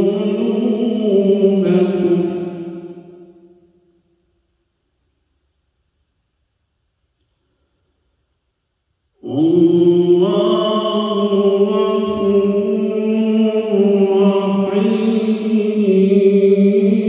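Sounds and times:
man chanting melodically: 0.0s - 2.9s, 9.2s - 17.0s.

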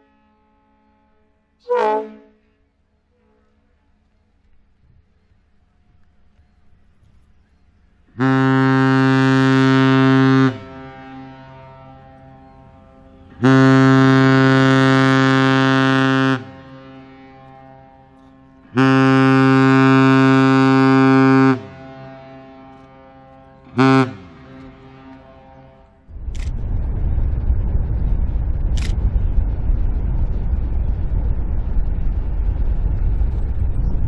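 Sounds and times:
ship whistle blasts: 0.0s - 2.6s, 8.2s - 25.9s
echo over water: 5.1s - 26.2s.

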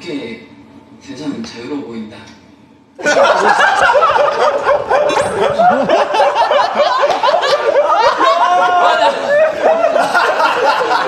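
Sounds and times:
group of men laughing: 3.0s - 11.0s.

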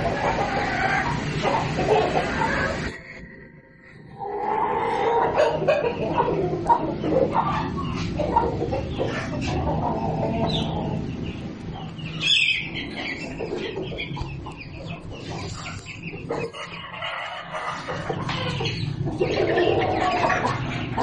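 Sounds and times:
chicken squawk: 0.0s - 3.2s, 4.2s - 11.0s, 12.2s - 21.0s
chickens clucking: 0.0s - 21.0s
steady low hum: 0.0s - 21.0s.

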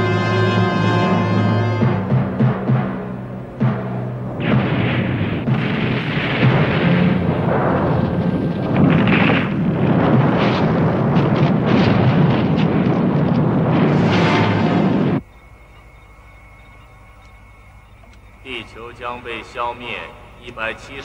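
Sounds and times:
heavy rumble: 0.0s - 15.3s
explosion blasts: 1.8s - 15.2s.

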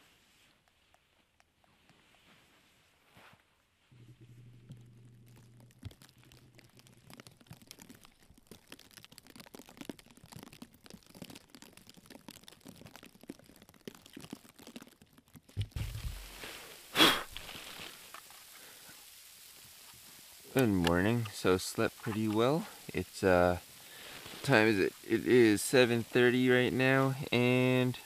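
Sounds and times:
fine crackling and rustling: 0.0s - 28.0s
low hum: 3.9s - 7.2s, 15.6s - 17.9s
low thumps: 15.6s - 16.6s.

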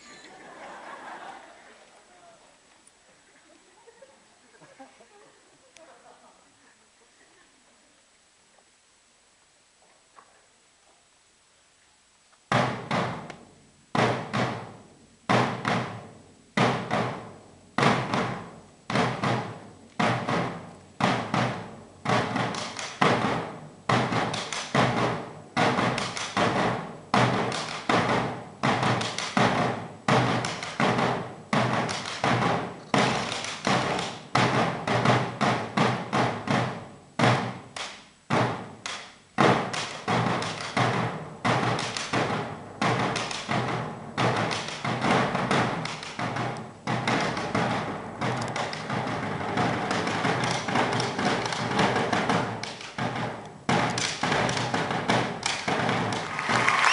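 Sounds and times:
drums struck with sticks: 12.5s - 56.9s.

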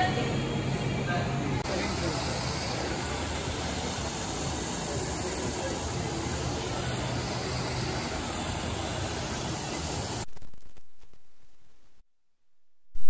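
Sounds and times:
fountain water splashing: 1.6s - 10.3s
small waterfall pouring: 1.6s - 10.3s.

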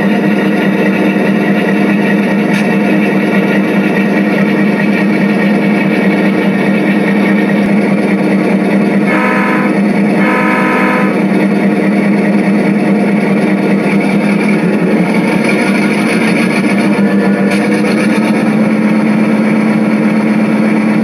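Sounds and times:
diesel locomotive engine drone: 0.0s - 21.0s
locomotive horn blasts: 9.0s - 11.3s.

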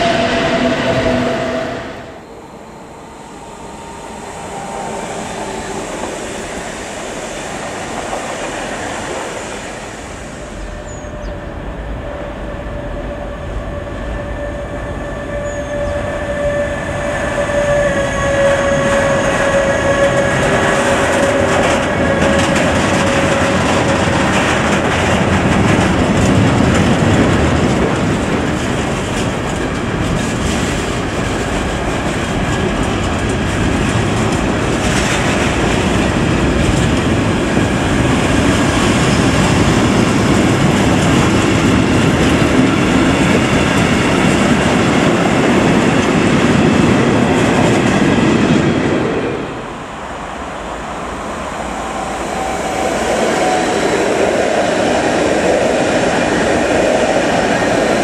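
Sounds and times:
high whine: 0.0s - 8.0s
freight train passing on bridge: 0.0s - 58.0s
wheels clattering over rail joints: 20.0s - 48.2s.

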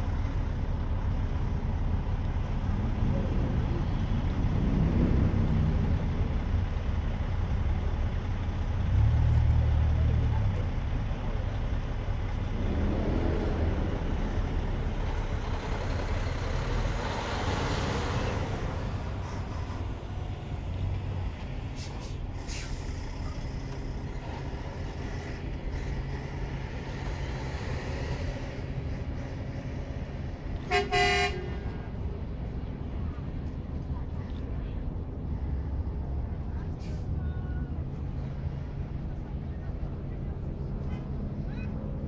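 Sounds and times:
low city rumble: 0.0s - 42.0s
vehicle horn honks: 30.7s - 31.7s.

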